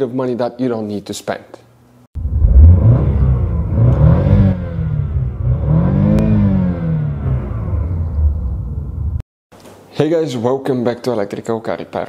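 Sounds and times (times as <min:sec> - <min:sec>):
car engine revving: 0:02.2 - 0:09.2.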